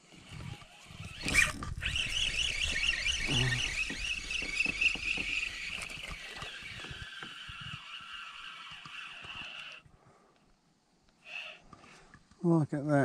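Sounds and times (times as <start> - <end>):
spinning reel whining: 0.0 - 9.9, 11.2 - 11.7.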